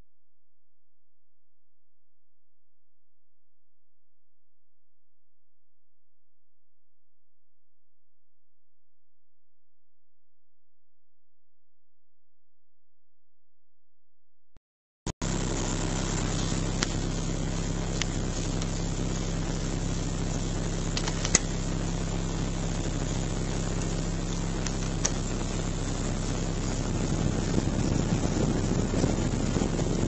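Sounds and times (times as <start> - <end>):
car engine idling: 15.2 - 30.0
heater blower air rushing: 15.2 - 30.0.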